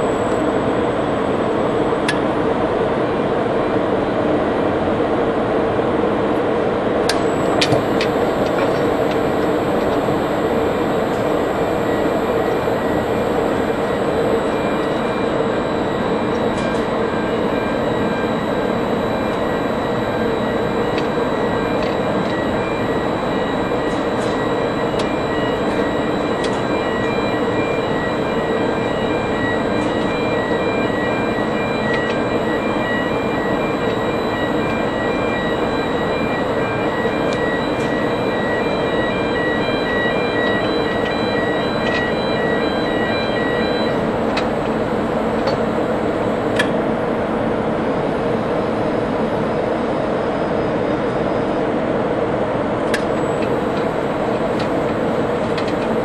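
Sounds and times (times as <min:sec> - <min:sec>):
rapidly pulsing beep: 0:07.2 - 0:46.6.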